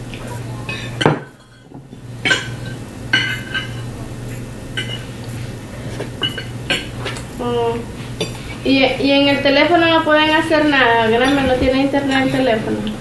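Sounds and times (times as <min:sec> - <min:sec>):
steady low hum: 0:00.0 - 0:13.0
cutlery clinking on plates: 0:00.2 - 0:03.9, 0:04.8 - 0:05.1, 0:06.0 - 0:07.2.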